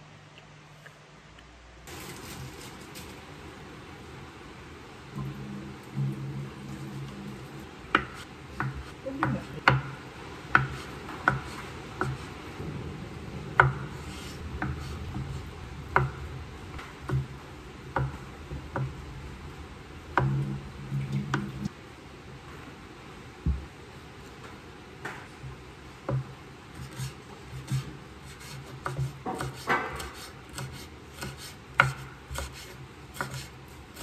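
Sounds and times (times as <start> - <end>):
knife cutting on wooden board: 26.8 - 34.0.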